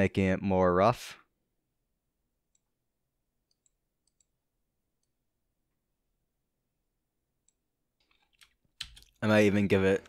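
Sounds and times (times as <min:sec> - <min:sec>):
computer mouse clicks: 0:03.4 - 0:04.4, 0:07.4 - 0:09.2.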